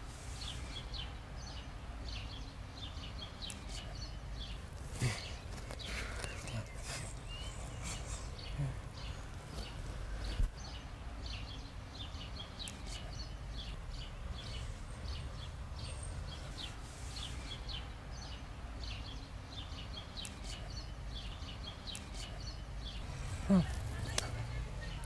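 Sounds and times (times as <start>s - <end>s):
small birds chirping: 0.0s - 25.0s
low outdoor rumble: 22.5s - 25.0s.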